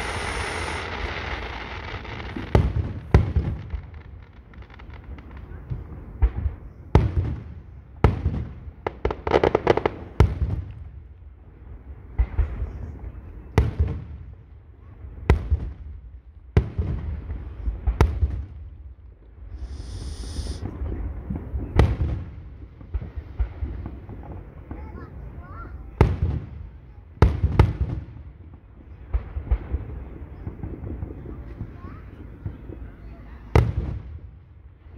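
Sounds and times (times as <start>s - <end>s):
high hiss: 0.0s - 2.6s, 19.5s - 20.7s
firework crackling: 0.0s - 11.0s, 19.4s - 34.9s
firework booms: 0.0s - 11.1s, 19.5s - 34.9s.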